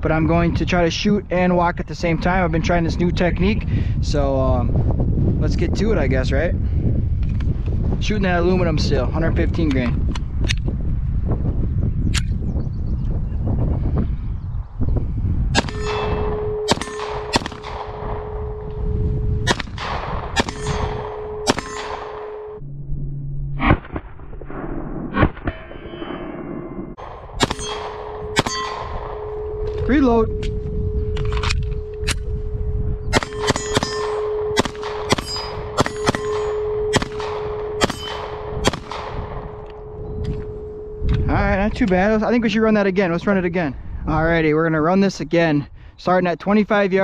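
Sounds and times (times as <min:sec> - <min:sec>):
pistol shots: 0:15.6 - 0:18.7, 0:19.4 - 0:22.6, 0:27.0 - 0:29.6, 0:33.1 - 0:39.7
steel target ringing: 0:15.6 - 0:22.6, 0:27.0 - 0:32.2, 0:33.0 - 0:41.0
steady tone: 0:15.6 - 0:42.4.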